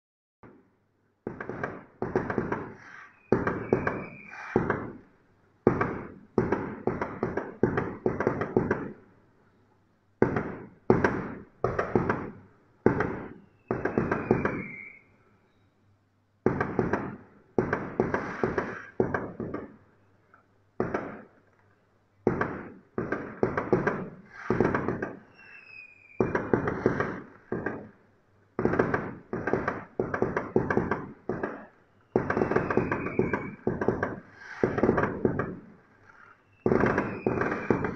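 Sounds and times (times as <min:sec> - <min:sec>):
fireworks bursting: 0:00.4 - 0:09.0, 0:10.2 - 0:15.1, 0:16.4 - 0:20.0, 0:20.8 - 0:37.9
short high whistle: 0:03.1 - 0:04.6, 0:13.7 - 0:15.1, 0:25.3 - 0:26.2.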